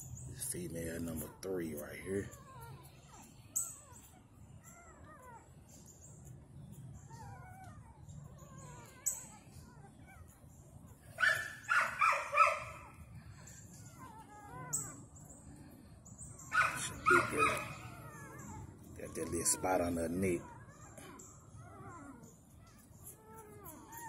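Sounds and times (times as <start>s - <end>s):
puppy whimpering and squeaking: 0.1s - 24.0s.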